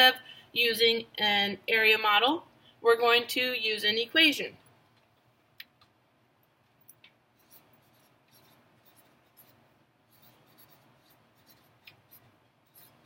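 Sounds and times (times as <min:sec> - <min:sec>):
marker pen writing on paper: 0:07.3 - 0:13.0.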